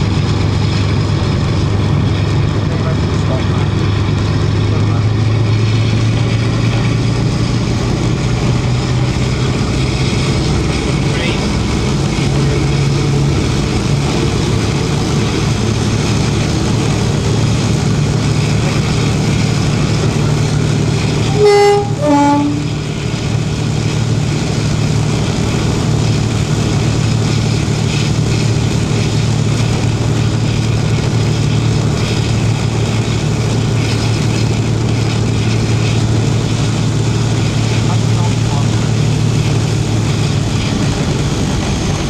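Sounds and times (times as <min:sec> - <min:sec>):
diesel locomotive engines running: 0:00.0 - 0:42.0
two-tone locomotive horn: 0:21.2 - 0:23.0.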